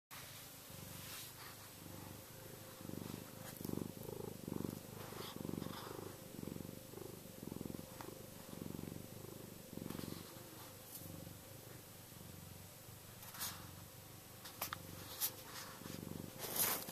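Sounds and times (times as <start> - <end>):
cat purring: 0.2 - 16.9.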